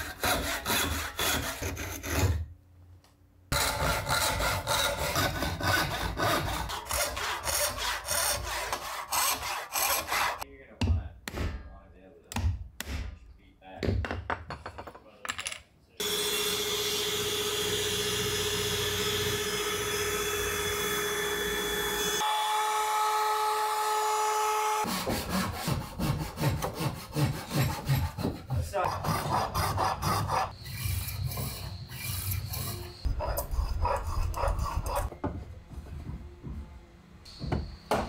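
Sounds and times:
hand tool working wood: 0.0 - 2.4, 3.6 - 10.4, 24.9 - 35.2
router cutting wood: 16.0 - 24.9.

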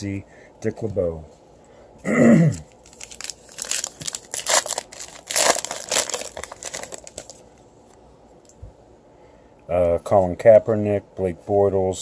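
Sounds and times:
plastic wrapper crinkling: 2.8 - 7.5.

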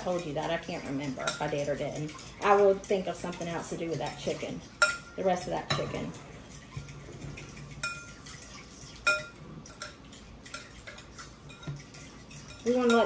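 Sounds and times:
metal fork scraping glass bowl: 6.2 - 13.0.

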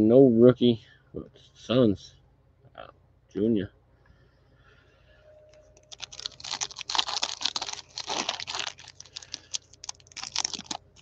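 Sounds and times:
card pack wrapper tearing and crinkling: 5.8 - 11.0.

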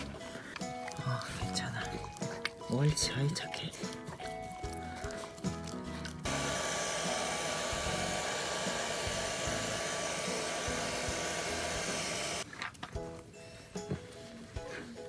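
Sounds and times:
hair dryer blowing: 6.2 - 12.4.

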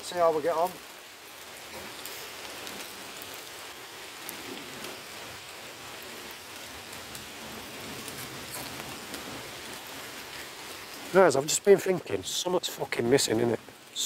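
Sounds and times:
steady rain hiss: 0.0 - 14.0.

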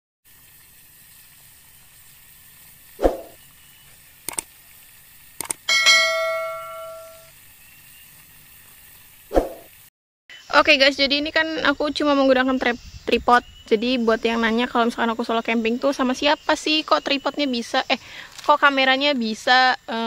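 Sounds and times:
mouse clicks: 4.3 - 4.5
notification bell ring: 5.7 - 7.3.

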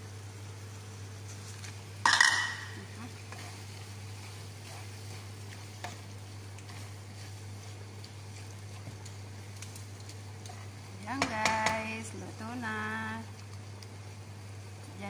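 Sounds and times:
faint sizzle: 0.0 - 15.0
wooden spatula stirring in pan: 1.2 - 14.7
cookware clattering: 2.1 - 2.8.

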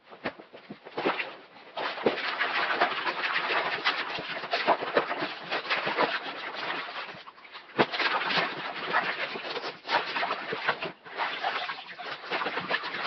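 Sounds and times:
brush scrubbing wet fabric: 0.9 - 13.0.

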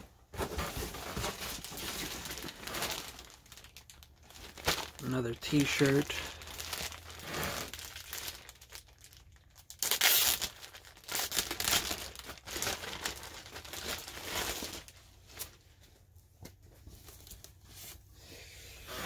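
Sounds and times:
plastic bag crinkling: 0.6 - 15.6.

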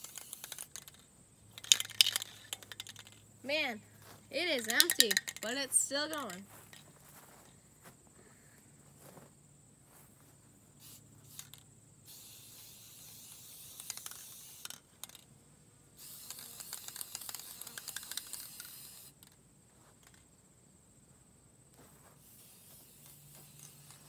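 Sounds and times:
spray can hissing: 0.0 - 1.0, 10.8 - 15.2, 16.0 - 19.3, 22.1 - 24.0.

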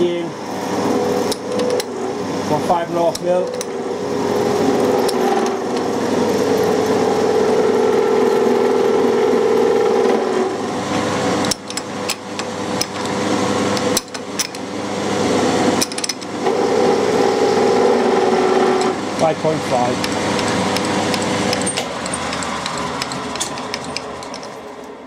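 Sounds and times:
milling machine motor hum: 0.0 - 25.0
machine clicks: 20.0 - 24.6
cutter rasping aluminium: 20.1 - 24.8.

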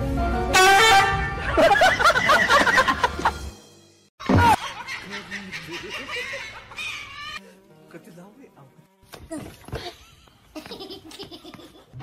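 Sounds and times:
background music: 0.0 - 10.0
people laughing: 1.4 - 3.4, 4.2 - 7.4, 9.8 - 12.0.

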